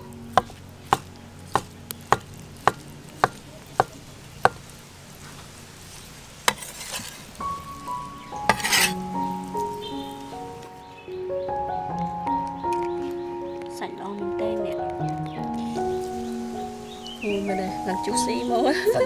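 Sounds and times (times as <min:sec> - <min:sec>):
soft music: 0:00.0 - 0:04.6, 0:06.5 - 0:19.0
knife chopping on wooden board: 0:00.4 - 0:03.9.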